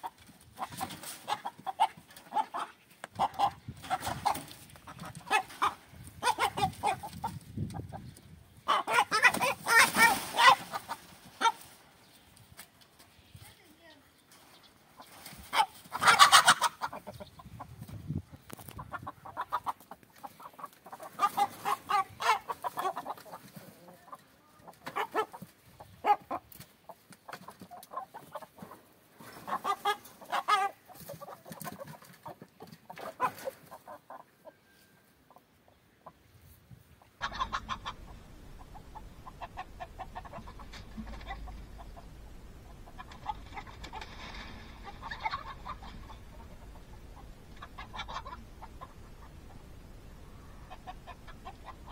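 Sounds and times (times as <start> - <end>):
chickens clucking and squawking: 0.0 - 13.4, 14.2 - 51.9
steady background noise: 35.0 - 51.9.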